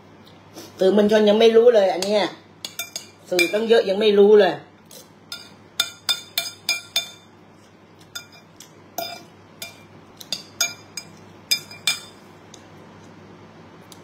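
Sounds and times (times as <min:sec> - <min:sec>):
metal spoons clinking on ceramic bowl: 0:02.0 - 0:03.7, 0:05.3 - 0:07.3, 0:08.1 - 0:12.2.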